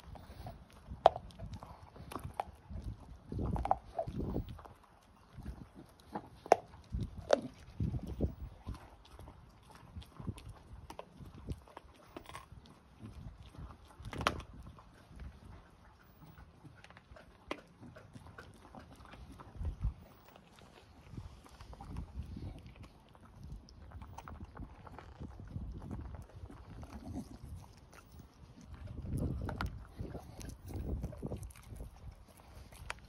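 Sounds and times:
dog gnawing bone crunches: 0:00.0 - 0:33.0
teeth knocking on bone: 0:00.8 - 0:04.7, 0:13.6 - 0:14.7.

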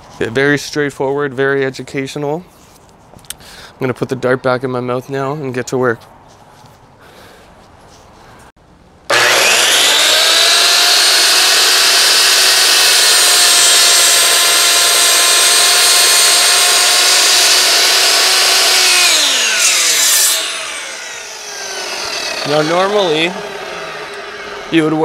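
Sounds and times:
miter saw whining through wood: 0:09.1 - 0:25.0.

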